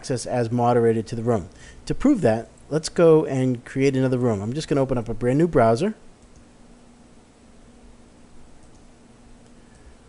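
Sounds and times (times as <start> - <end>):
microphone hiss: 0.0 - 10.0
computer mouse clicks: 6.2 - 6.5, 8.6 - 9.9.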